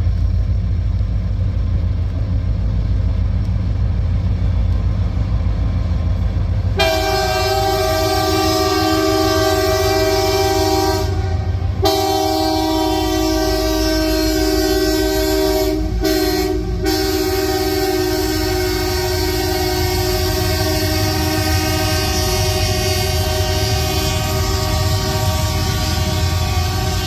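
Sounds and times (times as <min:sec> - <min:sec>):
freight cars rumbling over rails: 0:00.0 - 0:27.0
locomotive air horn chord: 0:06.7 - 0:27.0.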